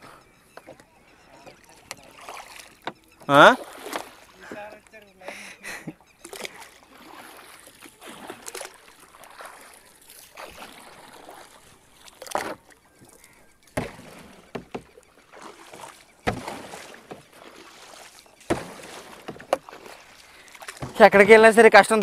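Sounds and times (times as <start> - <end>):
pole splashing in shallow water: 0.5 - 5.5, 6.1 - 22.0
sharp knocks: 13.8 - 15.0, 16.2 - 17.2, 18.5 - 19.6.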